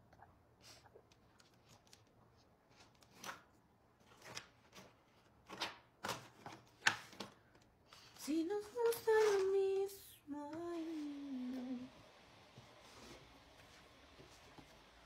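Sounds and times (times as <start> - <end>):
rummaging rustles and clacks: 4.0 - 10.0.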